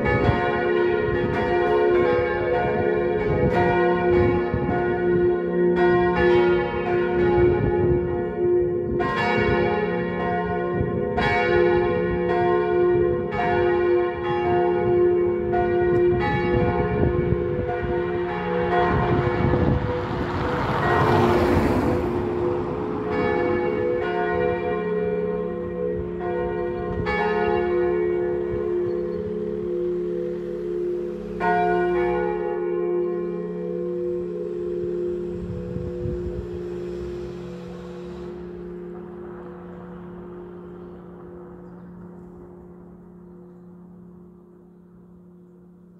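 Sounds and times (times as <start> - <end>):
church bells pealing: 0.0 - 45.9
rushing noise: 18.6 - 26.2, 33.4 - 43.2.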